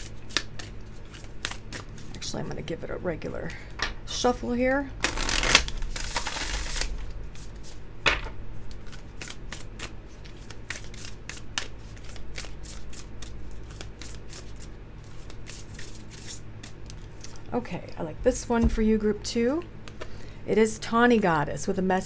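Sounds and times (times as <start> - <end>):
cards being shuffled by hand: 0.0 - 2.3, 5.0 - 17.4.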